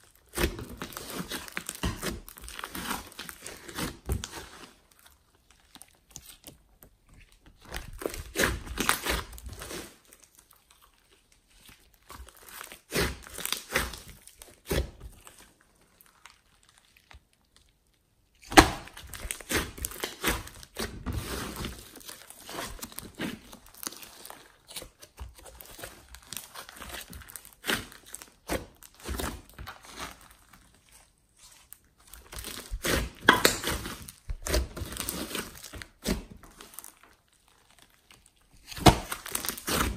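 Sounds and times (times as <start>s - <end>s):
slime crackling and popping: 0.0s - 39.9s
sharp slime pop: 18.4s - 20.4s.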